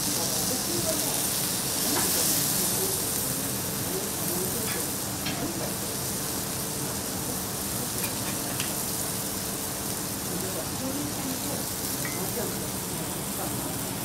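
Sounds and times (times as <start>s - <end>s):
chicken sizzling on a griddle: 0.0s - 14.0s
knife and fork tapping hot plate: 4.6s - 5.5s, 8.0s - 8.8s, 12.0s - 12.4s.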